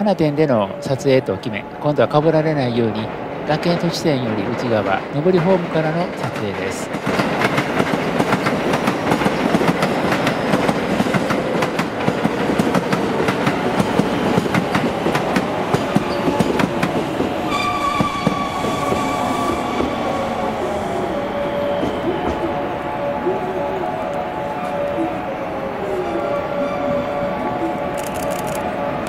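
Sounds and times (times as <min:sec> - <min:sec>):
train wheels clicking: 0:02.9 - 0:22.7, 0:27.4 - 0:28.7
steady high tone: 0:14.2 - 0:29.0.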